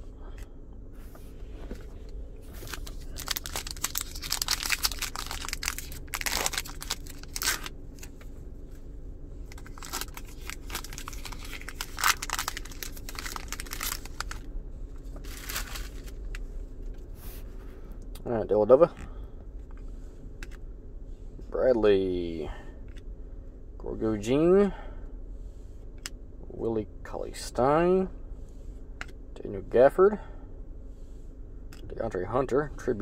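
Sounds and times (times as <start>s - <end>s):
foil wrapper crinkling and tearing: 2.5s - 8.2s, 9.5s - 14.5s, 15.1s - 16.4s.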